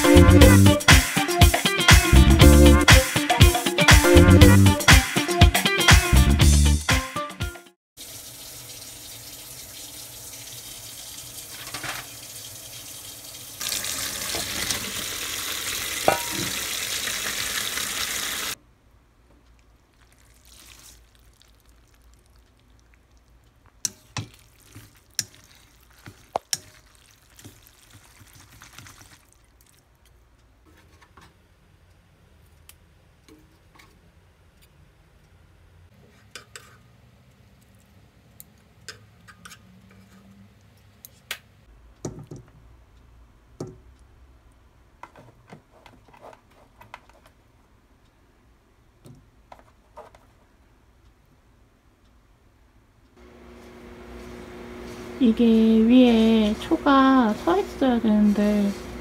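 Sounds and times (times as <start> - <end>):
water running from a tap: 8.0 - 18.6, 24.3 - 29.5
kitchen utensils clicking: 16.1 - 16.6.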